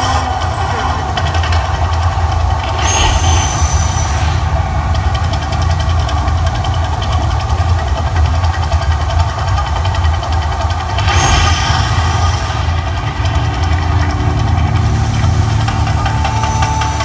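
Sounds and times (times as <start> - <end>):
deep steady rumble: 0.0 - 17.0
water jets hissing whoosh: 10.9 - 16.4.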